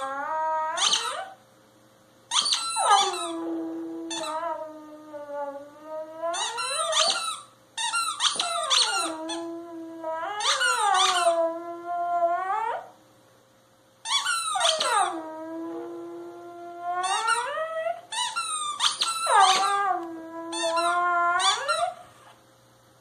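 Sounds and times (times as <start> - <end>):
dog howling: 0.0 - 1.4, 2.4 - 7.2, 8.4 - 12.9, 14.6 - 18.1, 18.8 - 22.0
squeaky toy squeaking: 0.8 - 1.4, 2.3 - 3.4, 6.4 - 9.4, 10.4 - 11.4, 14.0 - 15.1, 18.1 - 19.9, 20.5 - 22.0.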